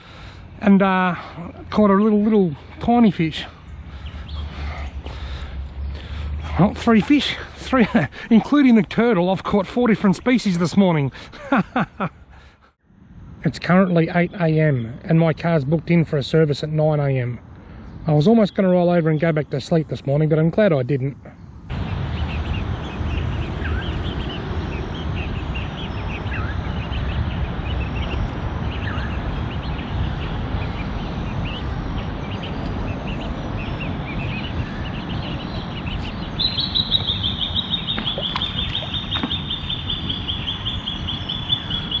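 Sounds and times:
ducklings peeping: 21.8 - 42.0.

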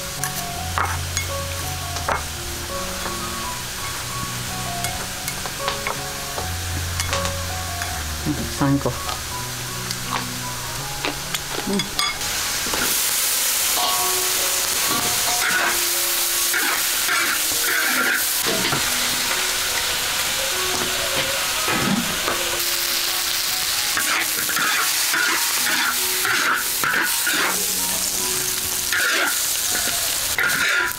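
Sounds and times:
greens sizzling in a wok: 0.0 - 30.9
spatula scraping and clanking on wok: 13.7 - 15.8, 16.5 - 19.0, 23.9 - 27.7, 30.4 - 30.9.

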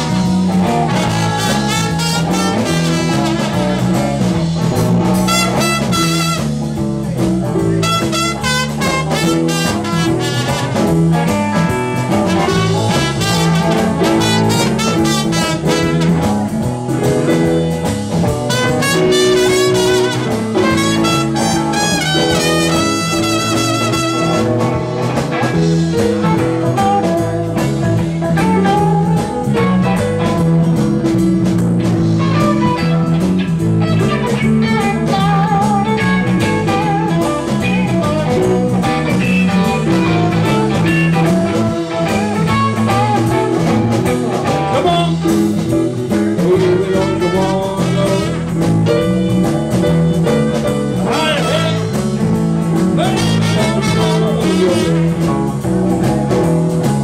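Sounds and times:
trumpet solo: 0.0 - 4.2, 5.2 - 6.7, 7.8 - 11.0, 12.2 - 16.5, 18.5 - 24.9, 46.6 - 48.6, 51.1 - 51.9, 53.0 - 55.2
blues band playing: 0.0 - 57.0
electric guitar lead: 0.0 - 57.0.

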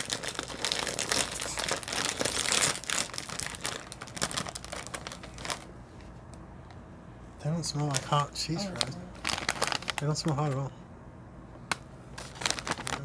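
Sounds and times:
chip bag rustling: 0.0 - 5.7, 7.9 - 10.4, 12.2 - 13.0.

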